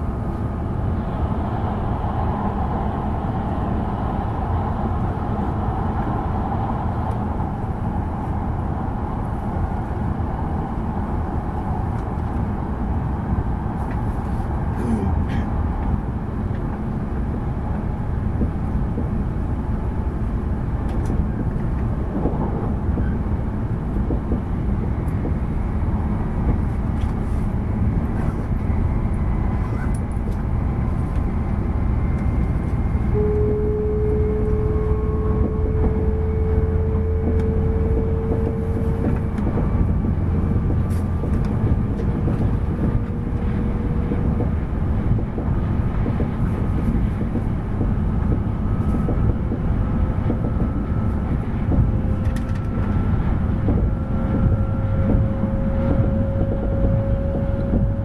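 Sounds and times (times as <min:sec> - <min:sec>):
train running noise from inside: 0:00.0 - 0:58.0
tone rising in pitch: 0:33.2 - 0:38.6.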